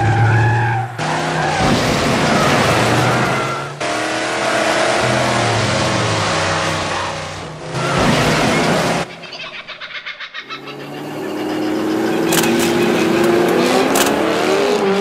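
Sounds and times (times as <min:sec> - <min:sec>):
car engines running and revving: 0:00.0 - 0:09.8, 0:10.4 - 0:15.0.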